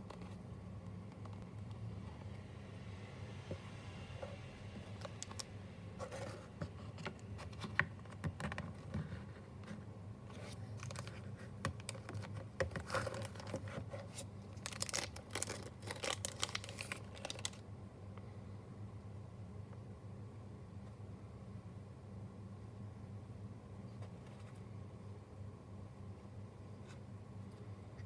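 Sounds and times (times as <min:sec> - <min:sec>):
handling taps and scrapes: 0:06.0 - 0:14.3
plastic sleeve crinkling: 0:10.4 - 0:17.6.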